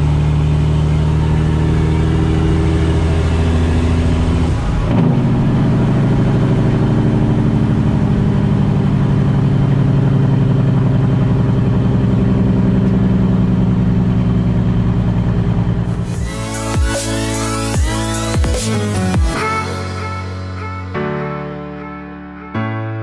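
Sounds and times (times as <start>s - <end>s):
diesel truck engine drone: 0.0s - 22.6s.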